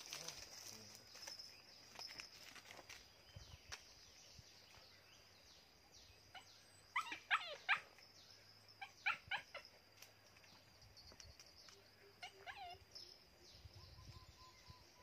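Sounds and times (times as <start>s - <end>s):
small dog yipping: 6.3s - 7.9s, 8.8s - 9.6s, 12.2s - 12.9s.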